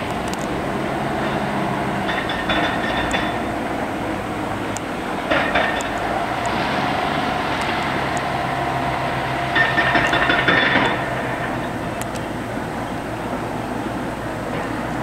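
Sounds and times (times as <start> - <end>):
diesel engine running: 0.0 - 15.0
hydraulic breaker hammering rock: 1.2 - 3.5, 5.3 - 6.1, 9.5 - 11.6.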